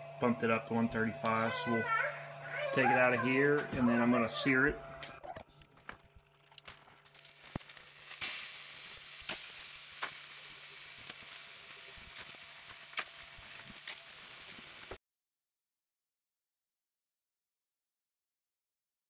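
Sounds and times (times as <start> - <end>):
steaks sizzling in a pan: 7.1 - 15.0.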